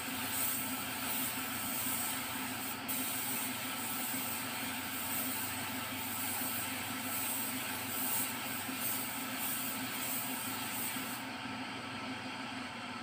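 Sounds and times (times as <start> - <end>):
paint spray gun hissing: 0.0 - 11.3.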